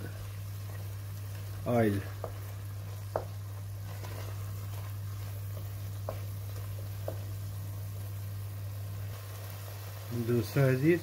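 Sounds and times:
spinach sizzling in oil: 0.0s - 11.0s
steady low hum: 0.0s - 11.0s
wooden spoon knocking pot: 2.1s - 3.6s, 5.5s - 7.4s.

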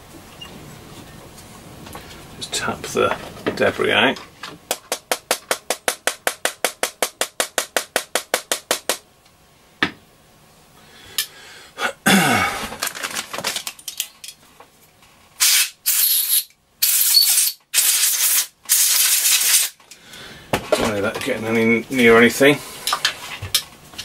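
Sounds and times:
aerosol can hissing sprays: 15.4s - 19.7s.

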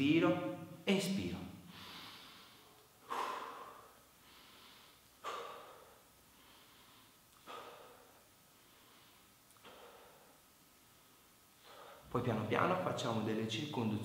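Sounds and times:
man breathing: 1.6s - 12.2s.

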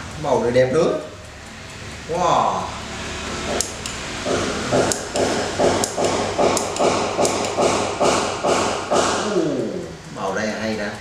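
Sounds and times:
rhythmic pulsing whir: 0.0s - 11.0s
lantern clicks: 3.5s - 4.1s, 4.7s - 7.8s.

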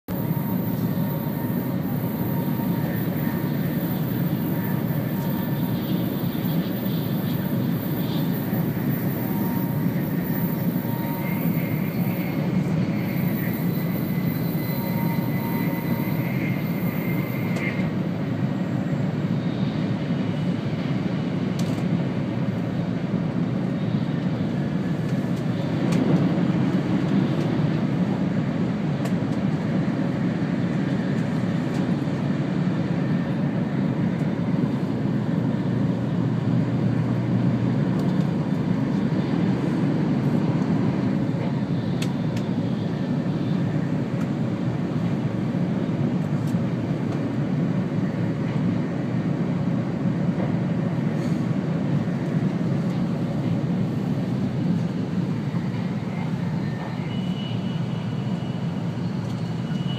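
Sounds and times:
train rumble inside cabin: 0.0s - 59.9s.

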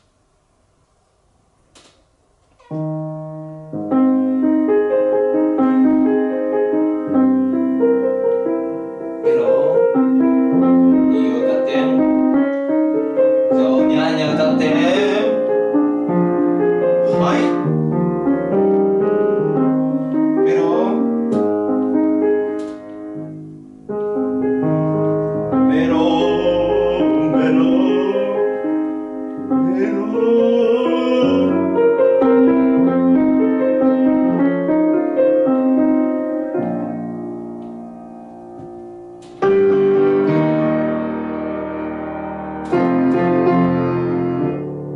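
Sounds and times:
grand piano piece: 0.0s - 44.9s.

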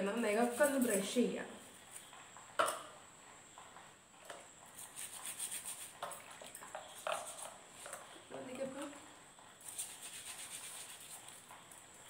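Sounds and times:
brush scrubbing feet: 4.8s - 6.0s, 9.6s - 11.4s.

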